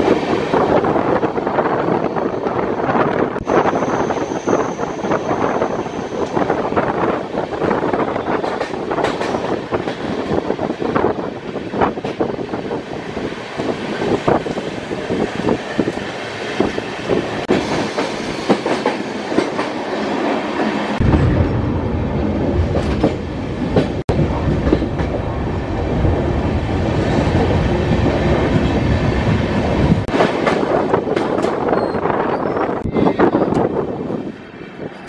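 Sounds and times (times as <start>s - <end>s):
train wheels clattering on rails: 3.4s - 12.8s, 13.6s - 20.8s, 22.6s - 25.4s, 27.0s - 32.0s
steady rushing noise: 16.4s - 31.7s
heavy low rumble: 21.0s - 30.1s.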